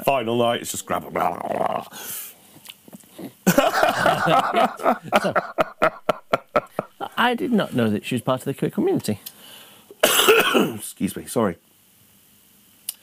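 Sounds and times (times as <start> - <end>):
man laughing hard: 3.4 - 7.2.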